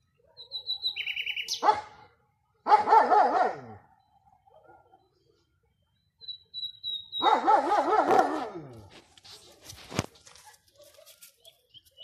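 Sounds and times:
nightingale whistling: 0.4 - 1.6, 6.2 - 7.4.

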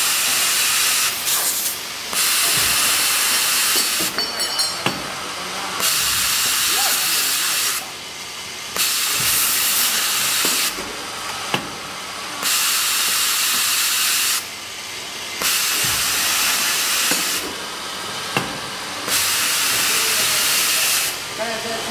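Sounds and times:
spray nozzles hissing: 0.0 - 4.2, 4.9 - 8.0, 8.7 - 21.9.

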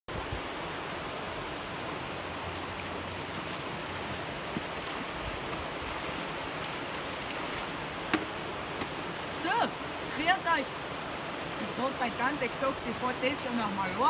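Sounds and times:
stream running over stones: 0.1 - 14.0
splashing of wading: 2.2 - 12.3.

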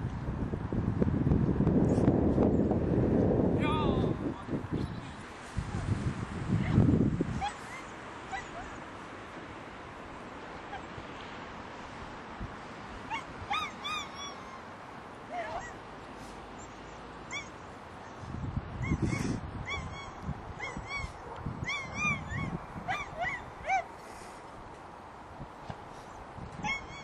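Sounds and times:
high arching animal calls: 13.1 - 14.7.

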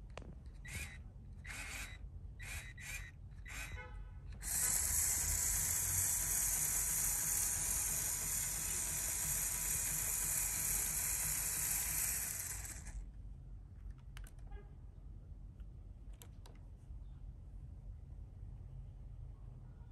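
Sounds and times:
electric motor whirring: 0.6 - 3.8, 4.4 - 13.0.

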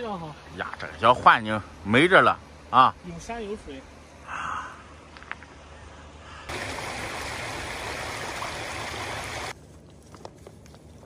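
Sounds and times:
faint steady hiss: 0.0 - 9.6
muddy stream rushing over stones: 6.5 - 9.6.

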